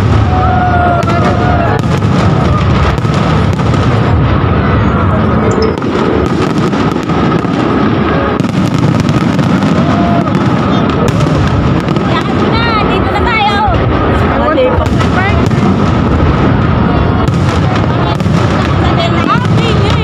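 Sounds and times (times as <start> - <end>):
fireworks bangs and crackles: 0.0 - 20.0.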